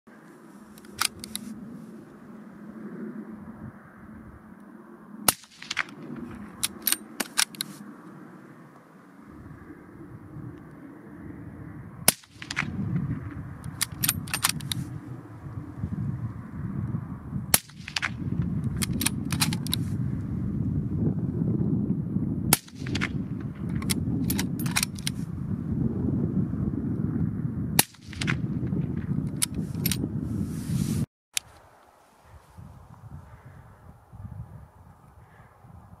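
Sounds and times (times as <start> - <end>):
wind buffeting microphone: 0.7 - 4.6, 5.2 - 36.0
suppressed rifle shots: 5.3 - 7.7, 12.1 - 12.8
rifle bolt clicking: 6.6 - 7.7.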